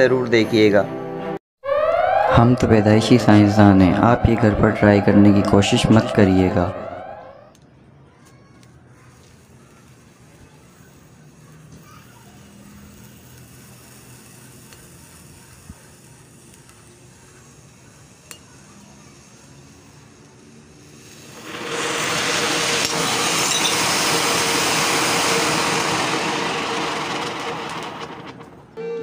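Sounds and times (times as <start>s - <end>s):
firework hissing: 8.6s - 28.8s
rush of sparks spraying: 8.9s - 28.8s.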